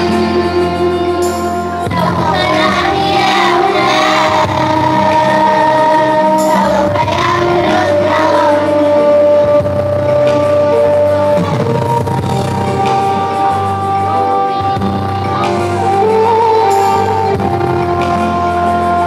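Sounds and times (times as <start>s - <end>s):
electronic keyboard accompaniment: 0.0s - 19.0s
girls choir singing: 1.9s - 9.2s.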